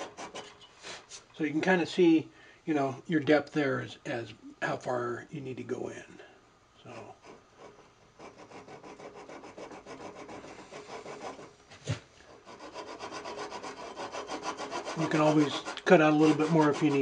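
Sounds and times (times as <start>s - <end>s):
handsaw cutting wood: 0.0s - 0.6s, 7.2s - 11.5s, 12.3s - 17.0s.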